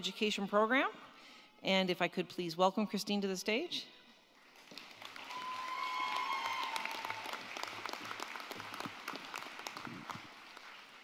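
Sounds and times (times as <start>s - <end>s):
audience applauding: 4.4s - 11.0s
person cheering: 5.3s - 7.4s.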